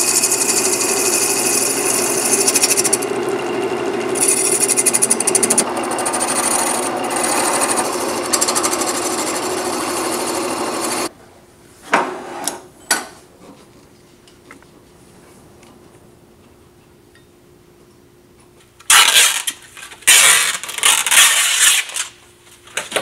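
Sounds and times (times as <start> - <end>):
gouge scraping spinning wood on lathe: 0.0 - 11.1.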